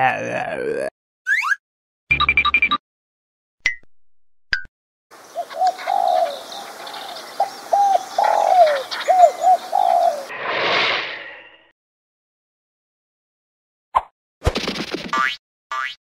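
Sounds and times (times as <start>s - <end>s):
pigeons cooing: 5.3s - 10.3s
brief burst of noise: 10.3s - 11.7s.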